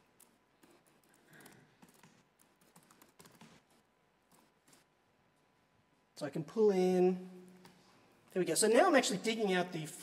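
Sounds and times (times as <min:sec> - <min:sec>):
faint typing on a keyboard: 0:00.0 - 0:05.5.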